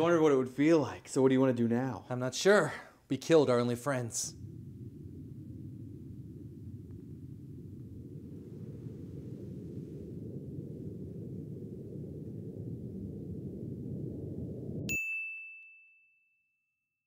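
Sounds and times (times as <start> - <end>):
low background rumble: 3.0 - 14.9
bright bell ding: 14.9 - 16.6.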